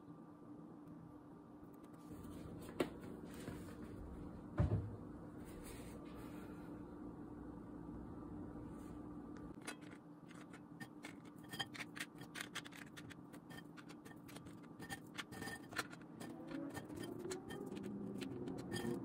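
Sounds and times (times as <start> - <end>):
faint steady hum: 0.0 - 19.0
food sticks clicking on ceramic plate: 10.3 - 19.0.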